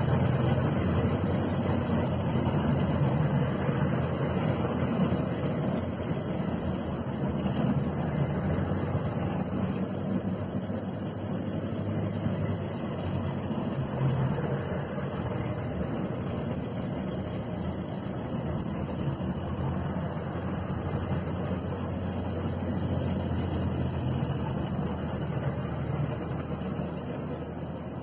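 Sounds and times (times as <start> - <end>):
tracked vehicle engines droning: 0.0 - 28.0.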